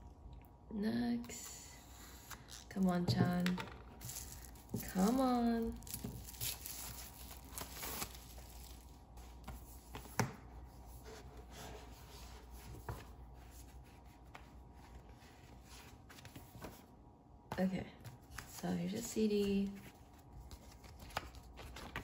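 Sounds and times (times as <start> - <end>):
paper and plastic rustling: 4.0 - 10.2.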